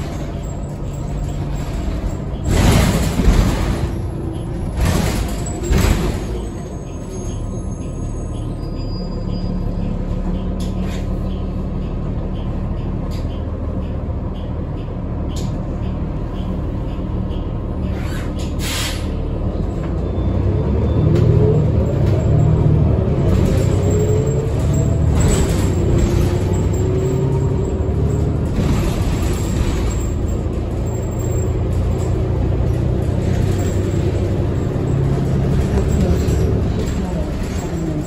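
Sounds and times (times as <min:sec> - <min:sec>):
bus engine rumble with whine: 0:00.0 - 0:38.0
air brake hisses: 0:18.6 - 0:19.2.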